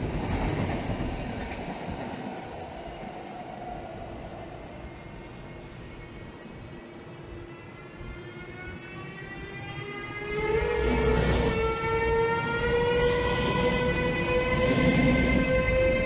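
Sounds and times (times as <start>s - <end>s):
electric locomotive whine: 0.0s - 16.0s.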